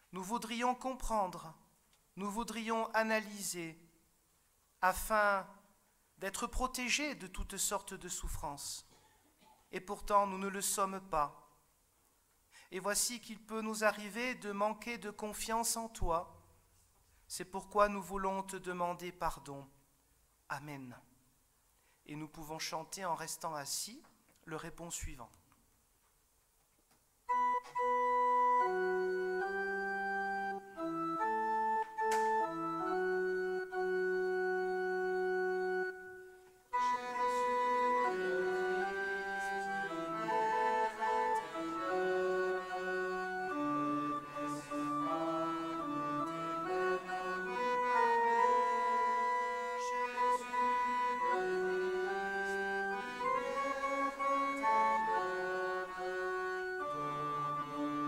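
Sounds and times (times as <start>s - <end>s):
organ playing slow chords: 27.3s - 58.0s.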